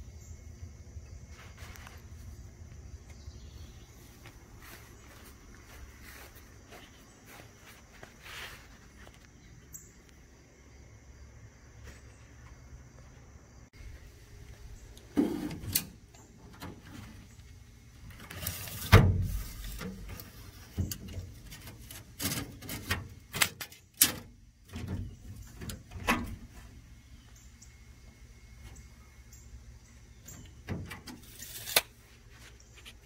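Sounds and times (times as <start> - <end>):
tape measure scraping on hull: 31.2 - 31.9.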